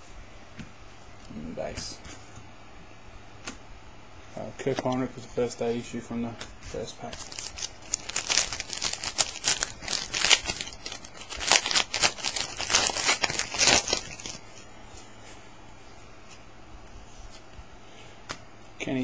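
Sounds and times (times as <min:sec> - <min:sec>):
wrapper tearing and crinkling: 0:07.0 - 0:14.4.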